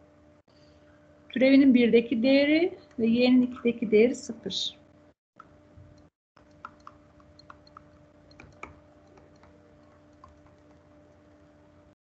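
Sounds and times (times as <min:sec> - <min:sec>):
faint steady hum: 0:00.0 - 0:12.0
stylus tapping on tablet: 0:06.4 - 0:10.8.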